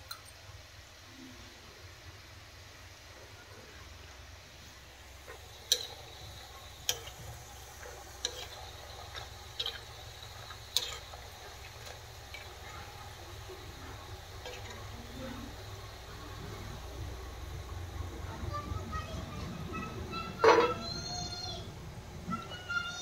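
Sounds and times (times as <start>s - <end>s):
dough deep-frying in oil: 0.0s - 23.0s
metal spoon clinking on pan: 5.6s - 6.1s, 6.8s - 7.2s, 7.8s - 11.2s, 14.4s - 14.8s.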